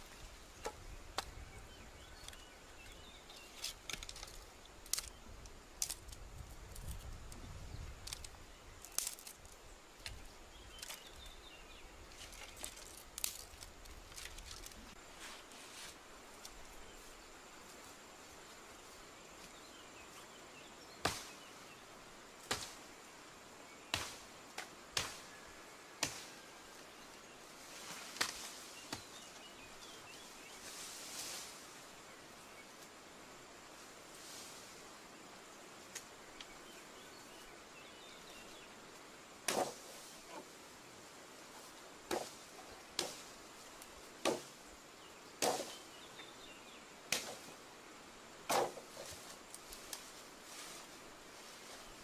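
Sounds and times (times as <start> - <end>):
hand tool chopping into earth: 21.0 - 21.4, 39.5 - 39.9, 42.1 - 42.4, 44.2 - 44.5, 45.4 - 45.8, 47.1 - 47.5, 48.5 - 49.2.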